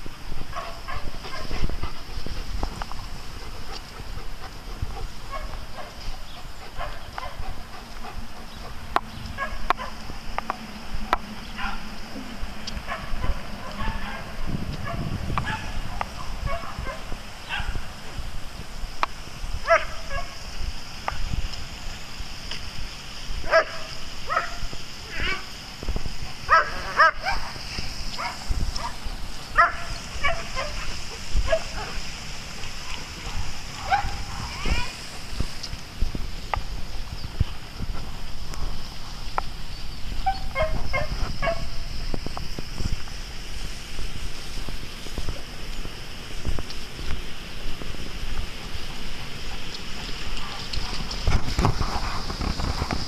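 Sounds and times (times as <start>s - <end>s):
dogs barking: 0.4s - 2.3s, 3.3s - 10.1s, 11.5s - 12.0s, 12.8s - 17.9s, 19.6s - 20.4s, 23.4s - 25.5s, 26.3s - 27.6s, 28.2s - 32.1s, 32.7s - 34.9s, 40.2s - 41.8s
dog barking high-pitched: 12.9s - 17.8s, 19.6s - 20.3s, 23.5s - 24.6s, 26.5s - 27.5s, 29.6s - 30.9s, 33.8s - 34.9s, 40.2s - 41.7s.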